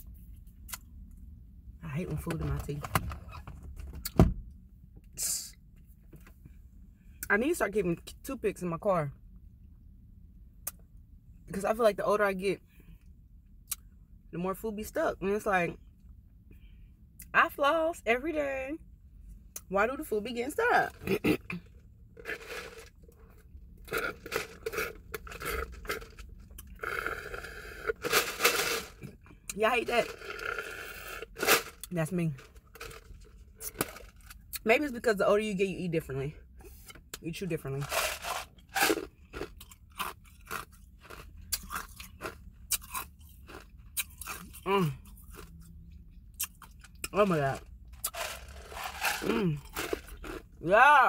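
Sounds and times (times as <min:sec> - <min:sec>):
ice cubes rattling in plastic cup: 0:22.2 - 0:22.9, 0:27.2 - 0:29.0, 0:37.8 - 0:39.1, 0:48.1 - 0:50.4
ice being chewed: 0:22.2 - 0:29.1, 0:30.0 - 0:31.9, 0:37.8 - 0:45.8, 0:46.4 - 0:50.6
sucking through a straw: 0:23.9 - 0:29.0, 0:30.0 - 0:31.7.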